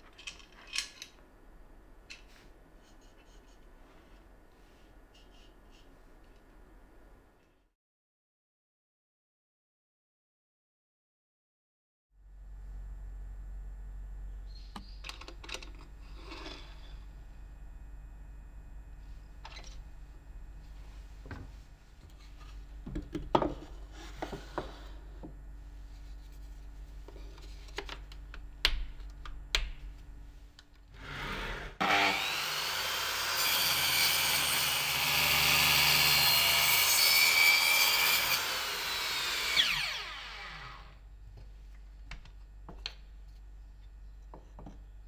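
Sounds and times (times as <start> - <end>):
circular saw cutting plywood: 31.0 - 41.0
saw blade winding down whine: 37.3 - 41.0.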